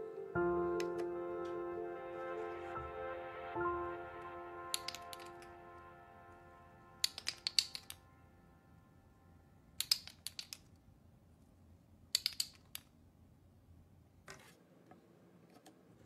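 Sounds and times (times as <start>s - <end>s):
wooden blocks clacking: 12.2s - 12.8s.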